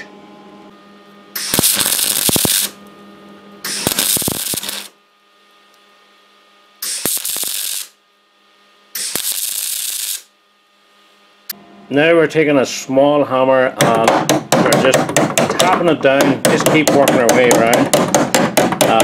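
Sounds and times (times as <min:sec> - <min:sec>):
welder low hum: 0:00.0 - 0:19.0
welding arc crackling: 0:01.4 - 0:02.8, 0:03.7 - 0:05.0, 0:06.8 - 0:08.0, 0:09.0 - 0:10.4.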